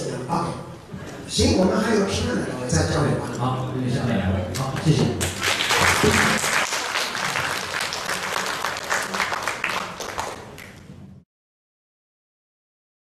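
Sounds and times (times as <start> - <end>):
audience applauding: 5.2 - 10.9.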